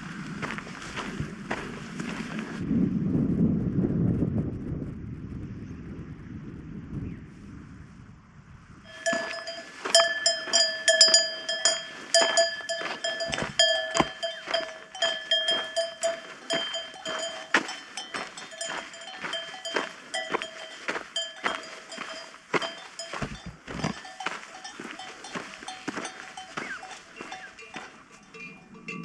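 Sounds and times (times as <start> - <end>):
cowbell clanking: 8.9 - 29.0.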